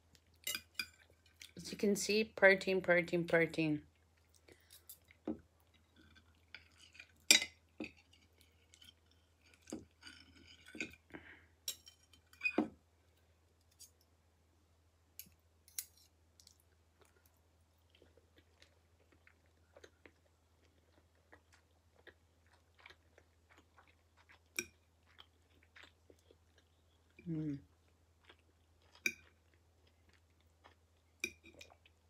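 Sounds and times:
knife and fork clinking on plate: 0.4 - 1.0
quiet chewing: 3.9 - 12.4, 16.0 - 32.0.

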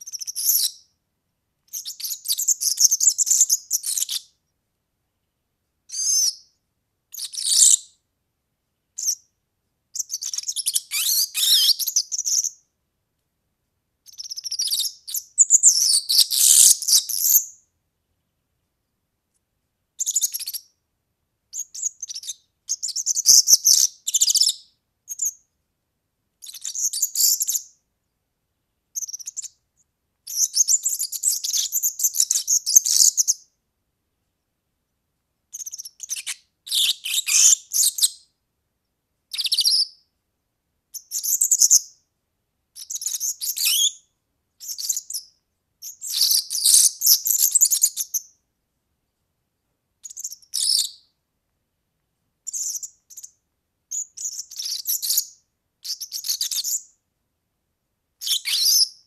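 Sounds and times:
bird twittering high-pitched: 0.0 - 0.9, 1.7 - 4.3, 5.9 - 6.5, 7.1 - 8.0, 9.0 - 9.3, 10.0 - 12.6, 14.1 - 17.6, 20.0 - 20.7, 21.6 - 25.4, 26.4 - 27.7, 29.0 - 29.6, 30.3 - 33.4, 35.5 - 38.2, 39.3 - 40.0, 41.0 - 41.9, 42.8 - 44.0, 44.6 - 48.3, 50.0 - 51.0, 52.5 - 56.9, 58.2 - 59.0.

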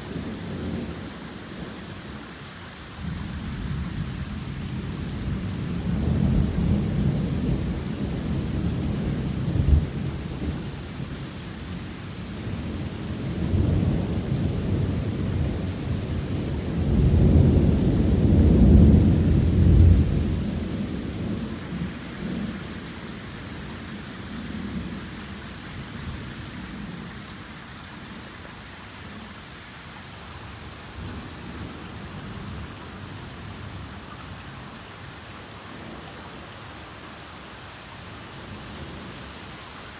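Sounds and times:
torrential rain: 0.0 - 39.9
rolling thunder: 12.4 - 22.6.

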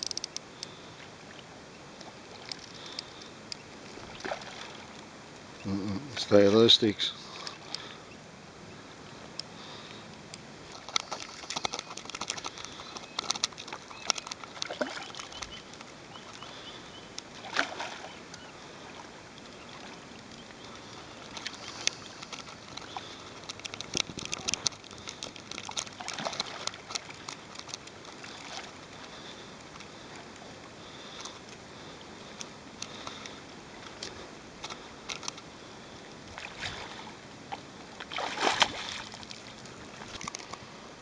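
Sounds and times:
steady outdoor hiss: 0.0 - 41.0
fish splashing in water: 3.9 - 4.9, 10.7 - 19.1, 20.6 - 30.2, 38.0 - 40.5.

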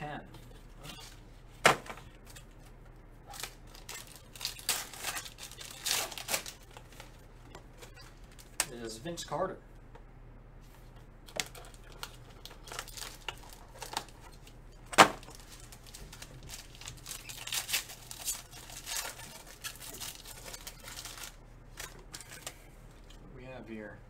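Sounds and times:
foil wrapper crinkling: 3.2 - 7.2, 11.3 - 22.6
foil wrapper ripping: 3.3 - 6.8, 11.4 - 14.3, 15.0 - 21.4.

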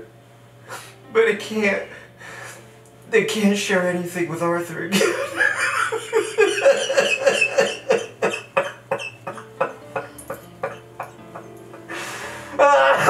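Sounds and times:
man crying in rapid sobs: 4.9 - 13.0.

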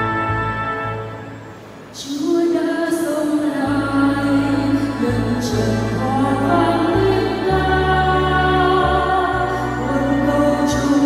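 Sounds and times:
sustained bass notes: 0.0 - 1.8
women's choir singing a hymn: 4.5 - 11.0.

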